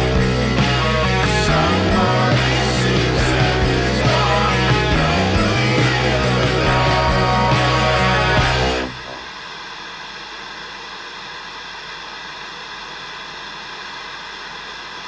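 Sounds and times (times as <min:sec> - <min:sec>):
song music: 0:00.0 - 0:09.2.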